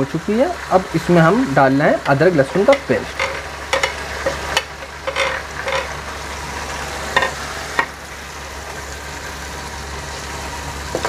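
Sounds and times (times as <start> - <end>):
onions sizzling in hot oil: 0.0 - 11.0
metal ladle scraping pan: 2.6 - 6.0.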